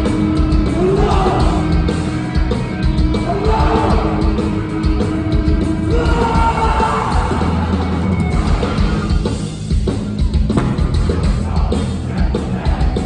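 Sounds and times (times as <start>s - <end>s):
distorted guitars: 0.0s - 13.0s
pounding drums: 0.0s - 13.0s
shouted vocals: 0.7s - 1.8s, 3.2s - 4.4s, 5.8s - 7.8s.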